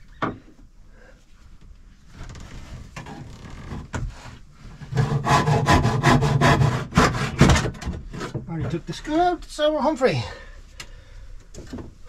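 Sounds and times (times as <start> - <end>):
wood rasping on wood: 4.9 - 7.6.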